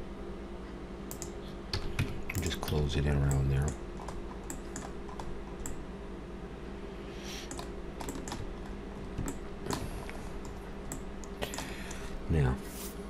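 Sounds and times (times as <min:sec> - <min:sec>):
steady low hum: 0:00.0 - 0:13.0
keyboard keystrokes: 0:07.5 - 0:08.5.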